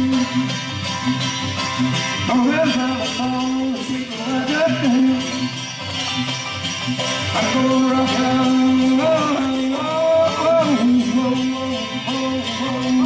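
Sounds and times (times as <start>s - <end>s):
man singing: 0.0s - 0.7s, 2.2s - 5.7s, 7.1s - 13.0s
banjo: 0.0s - 13.0s
string band playing fast tune: 0.0s - 13.0s.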